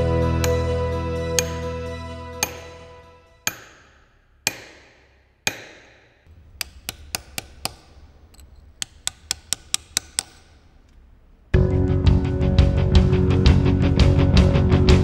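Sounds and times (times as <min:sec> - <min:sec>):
hammer striking chisel on stone: 0:01.4 - 0:01.6, 0:02.4 - 0:02.8, 0:03.4 - 0:10.7.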